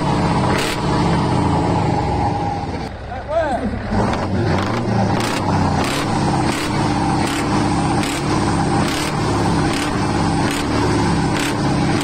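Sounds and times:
truck diesel engine revving: 0:00.0 - 0:12.0.

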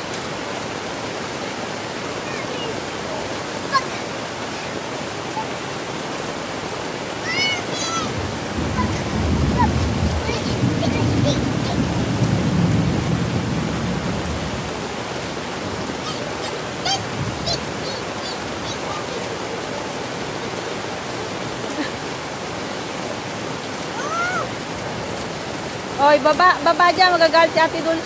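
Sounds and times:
heavy rain on concrete: 0:00.0 - 0:28.0.

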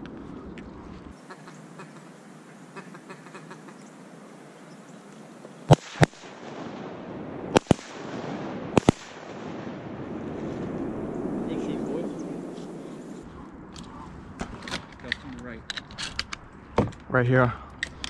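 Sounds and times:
shotgun blasts: 0:05.7 - 0:10.0.

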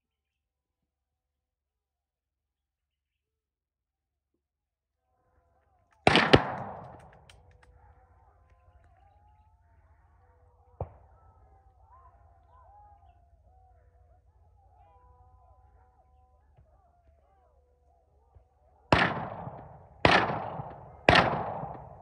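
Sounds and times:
gunshots echoing: 0:06.0 - 0:08.9, 0:18.9 - 0:22.0.

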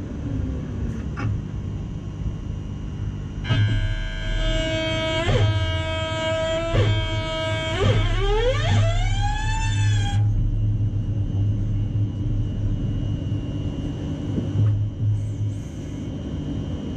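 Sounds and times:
low hum and rumble: 0:00.0 - 0:16.9
train traction drive whining: 0:03.4 - 0:16.9.

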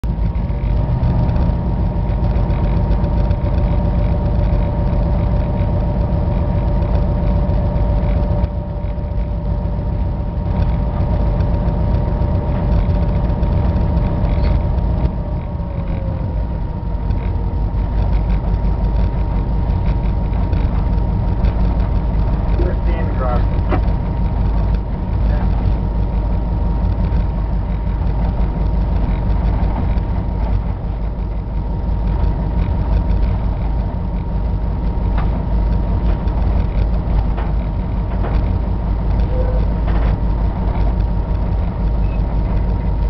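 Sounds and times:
diesel engine rumble: 0:00.0 - 0:43.0
engine whine: 0:00.0 - 0:43.0
whine sliding down in pitch: 0:00.8 - 0:22.6.

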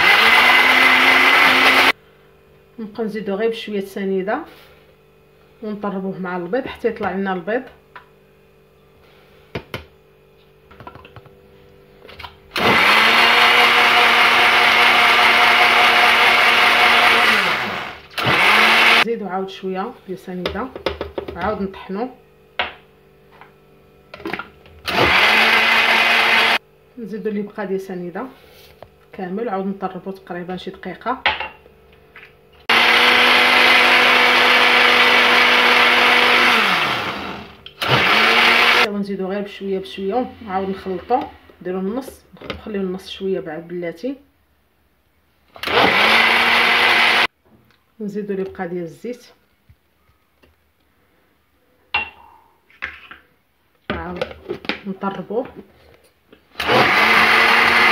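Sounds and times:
blender motor running: 0:00.0 - 0:02.0, 0:12.5 - 0:19.1, 0:24.3 - 0:26.6, 0:32.6 - 0:38.9, 0:45.6 - 0:47.3, 0:56.5 - 0:57.9.

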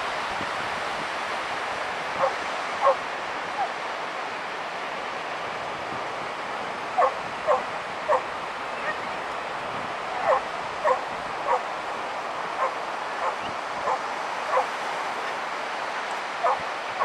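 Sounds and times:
dog barking: 0:02.2 - 0:03.0, 0:07.0 - 0:08.2, 0:10.2 - 0:11.6, 0:12.6 - 0:14.7, 0:16.4 - 0:16.6.

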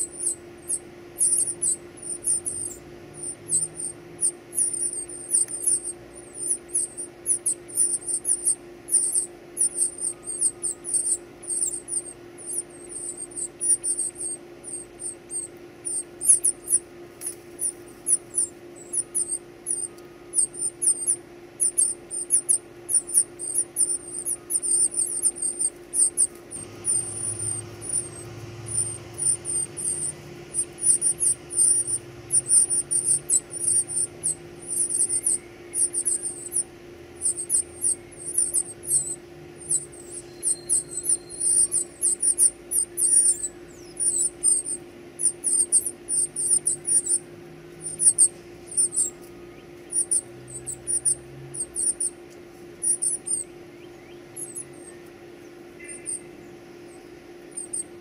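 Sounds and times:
nestlings chirping high-pitched: 0:00.0 - 0:58.0.

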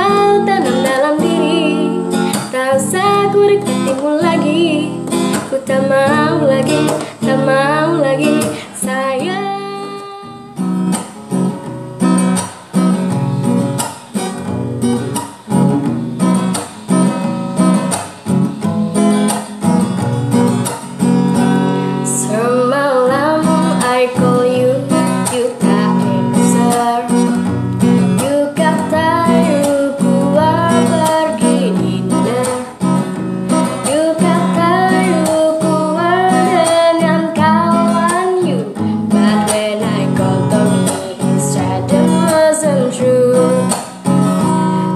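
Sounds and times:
woman singing: 0:00.0 - 0:10.7, 0:21.7 - 0:44.9
acoustic guitar strumming: 0:00.0 - 0:44.9.

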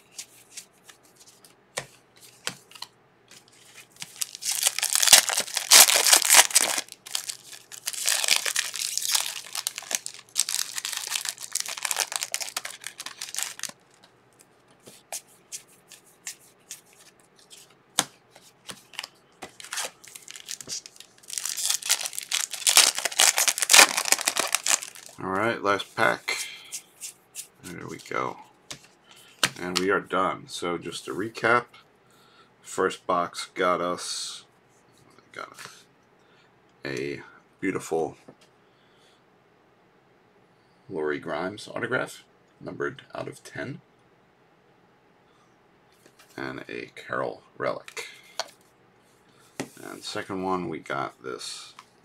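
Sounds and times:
foil wrappers crinkling and tearing: 0:04.0 - 0:13.8, 0:18.8 - 0:25.2.

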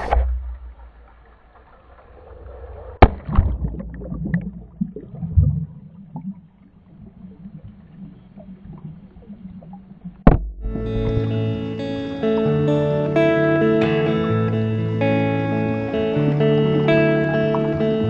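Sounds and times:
splash into pool: 0:00.0 - 0:06.2
underwater gurgling: 0:00.0 - 0:13.0, 0:16.1 - 0:18.0.

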